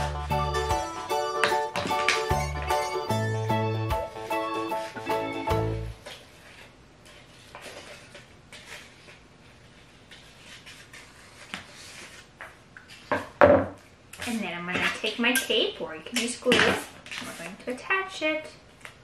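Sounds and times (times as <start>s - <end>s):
paper rustling and crinkling: 6.0s - 13.1s.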